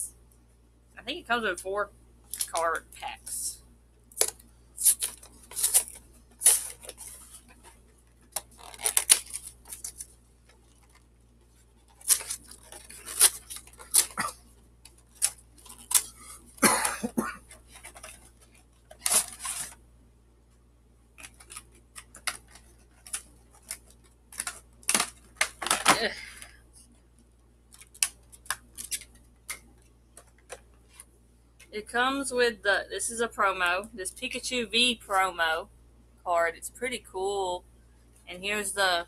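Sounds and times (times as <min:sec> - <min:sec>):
plastic wrap crinkling: 0:02.3 - 0:02.8, 0:04.1 - 0:19.8, 0:21.1 - 0:26.9, 0:27.6 - 0:31.7
cardboard rustling: 0:04.2 - 0:16.2, 0:17.4 - 0:19.8.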